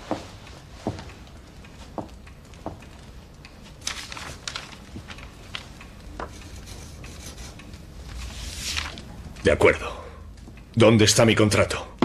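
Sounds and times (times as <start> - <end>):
pen scratching on paper: 6.4 - 7.6.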